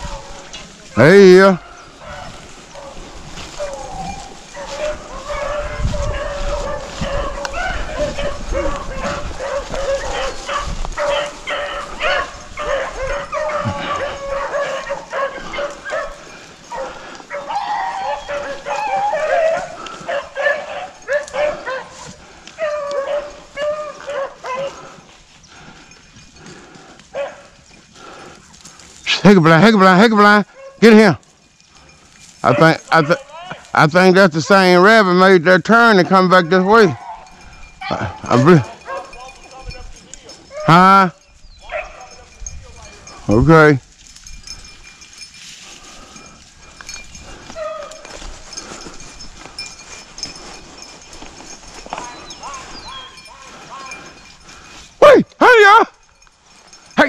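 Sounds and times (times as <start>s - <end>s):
footsteps through leaves: 0.0s - 25.8s, 43.8s - 55.0s
dogs baying: 0.0s - 29.7s, 30.4s - 33.8s, 35.7s - 43.4s, 44.1s - 57.0s.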